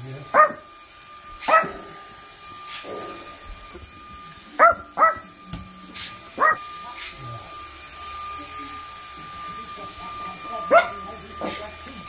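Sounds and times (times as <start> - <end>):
toy propeller humming: 0.0 - 12.0
small dog yipping: 0.4 - 0.6, 1.4 - 1.8, 4.6 - 5.3, 6.4 - 6.6.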